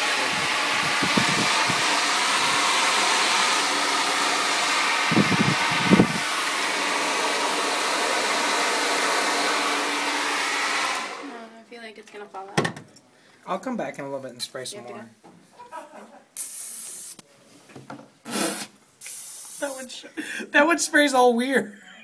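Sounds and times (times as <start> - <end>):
hair dryer blowing: 0.0 - 11.5.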